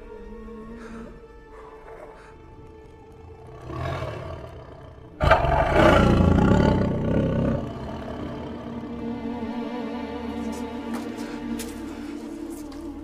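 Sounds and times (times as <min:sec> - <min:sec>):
lion growling: 0:00.0 - 0:09.4
lion roaring: 0:00.4 - 0:09.2.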